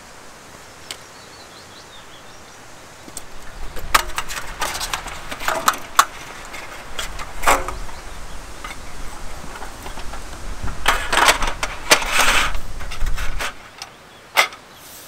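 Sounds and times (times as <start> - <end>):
slatted tabletop clattering: 3.6 - 8.0.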